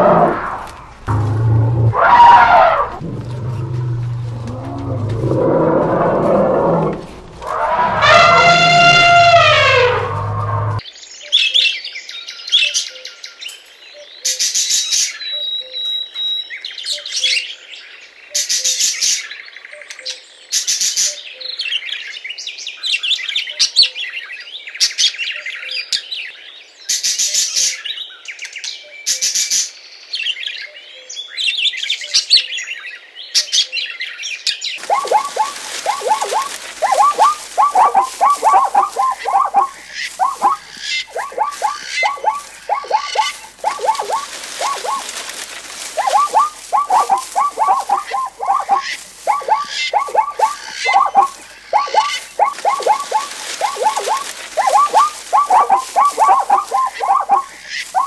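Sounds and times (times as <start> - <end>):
parakeet chirps and harsh screeches: 7.5 - 10.8, 34.8 - 45.1
parakeet chattering calls: 34.8 - 45.1, 46.0 - 58.0.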